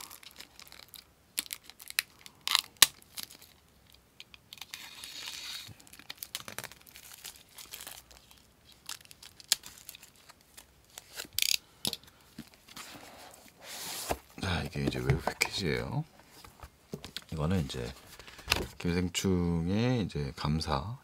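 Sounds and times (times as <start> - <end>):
plastic wrap tearing: 0.0 - 3.5, 4.5 - 11.6
plastic wrap crinkling: 0.0 - 15.7.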